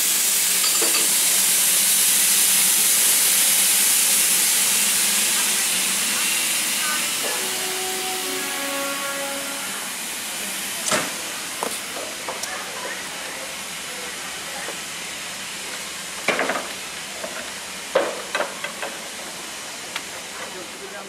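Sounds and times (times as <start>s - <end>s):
steam locomotive hissing: 0.0s - 21.0s.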